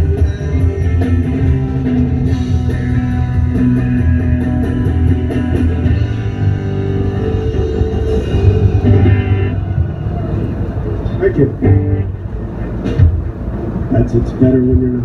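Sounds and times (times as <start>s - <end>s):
rock band playing: 0.0s - 13.8s
electric guitar: 0.0s - 14.0s.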